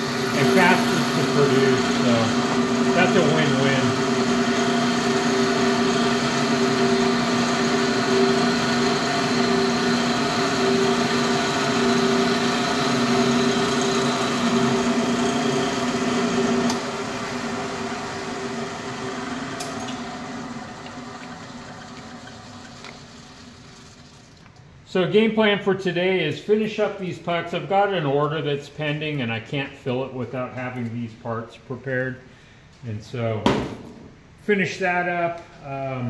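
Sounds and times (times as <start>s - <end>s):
high cutting whine: 0.0s - 23.2s
milling machine drone: 0.0s - 24.5s.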